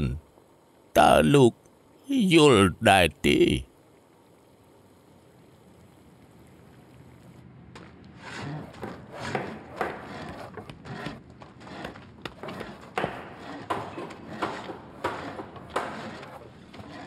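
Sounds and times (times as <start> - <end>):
sharp knocks and clacks: 11.8 - 16.4.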